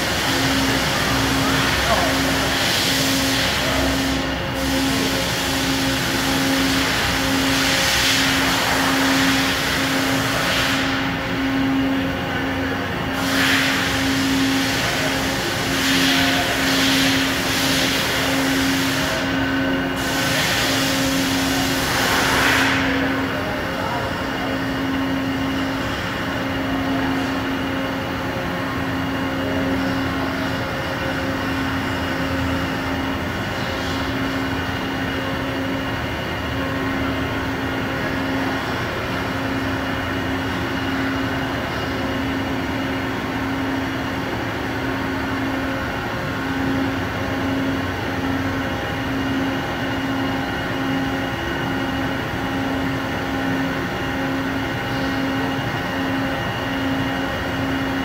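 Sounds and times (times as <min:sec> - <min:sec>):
machine hiss: 0:00.0 - 0:11.2, 0:13.1 - 0:23.3.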